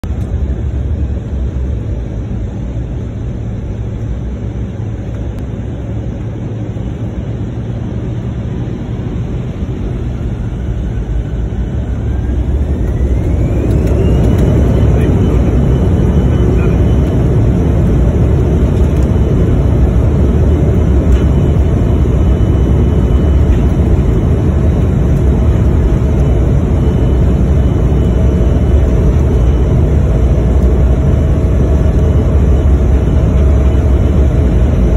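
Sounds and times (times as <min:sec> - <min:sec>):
jet engines roaring and whining: 0:00.0 - 0:34.9.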